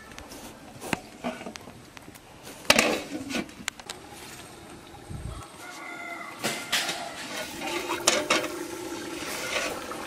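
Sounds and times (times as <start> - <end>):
firewood and leaves rustling: 0.0 - 8.0.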